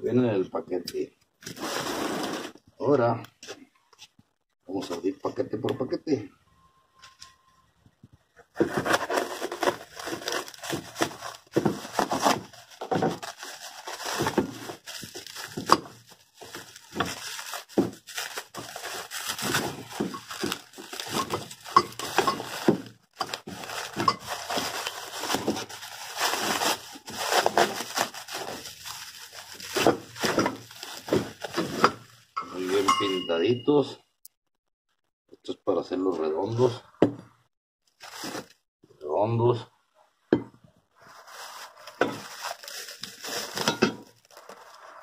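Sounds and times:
plastic wrap crinkling and tearing: 8.6 - 32.1, 37.9 - 38.5, 41.0 - 45.0.

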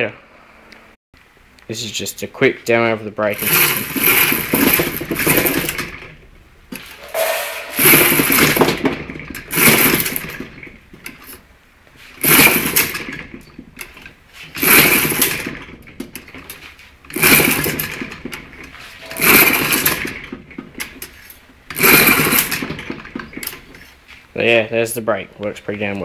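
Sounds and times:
two-stroke engine revving: 3.4 - 6.0, 7.7 - 10.4, 12.2 - 13.3, 14.6 - 15.7, 17.1 - 18.2, 19.0 - 20.4, 21.7 - 23.4.

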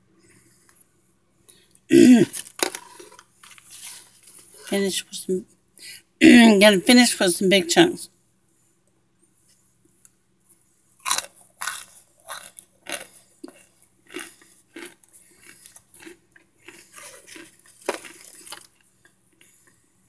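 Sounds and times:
crunching and chewing: 1.5 - 4.7, 10.0 - 20.0.

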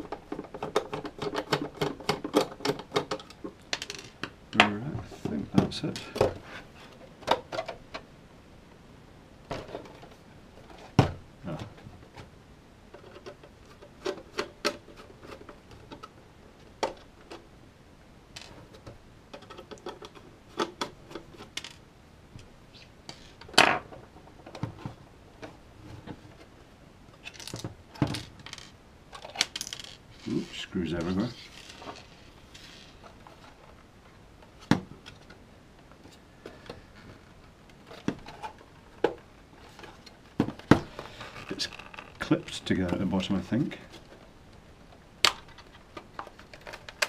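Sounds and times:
plastic casing clicks and creaks: 34.6 - 43.1, 45.3 - 47.0.

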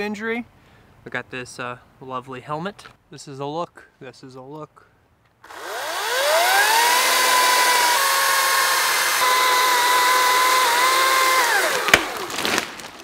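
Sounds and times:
electric chainsaw cutting wood: 5.4 - 12.7.

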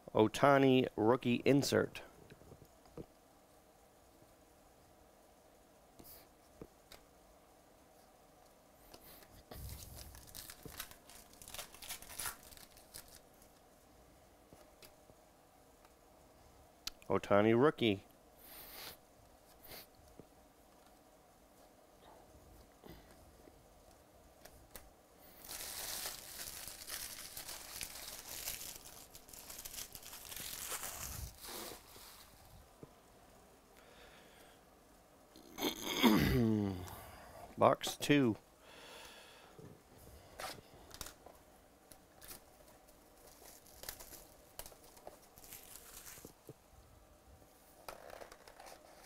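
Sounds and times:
foil wrapper tearing and crinkling: 9.6 - 13.2, 25.4 - 32.0, 43.2 - 46.4.

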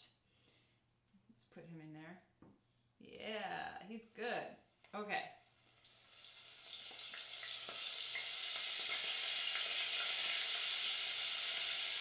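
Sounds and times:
calamari frying in hot oil: 5.4 - 12.0.

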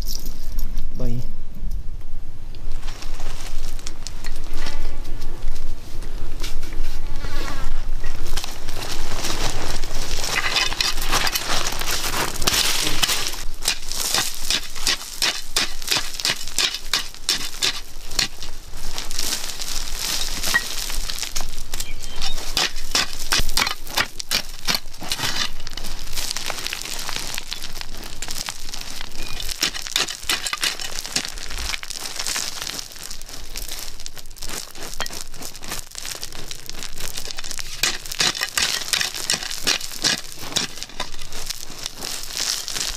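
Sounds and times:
gritty soil crunching: 2.6 - 42.9.

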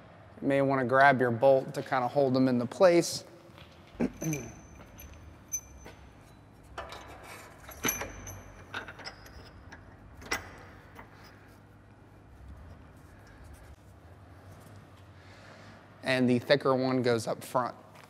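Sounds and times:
light metallic clinks: 4.0 - 11.4.

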